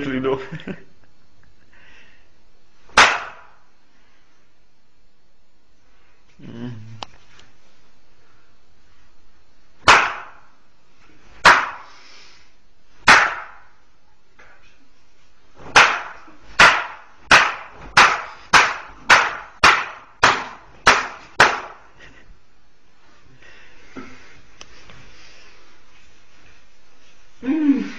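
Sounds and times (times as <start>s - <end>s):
sharp slapping blows: 2.9s - 3.6s, 9.8s - 10.5s, 11.4s - 11.9s, 13.0s - 13.7s, 15.6s - 21.9s.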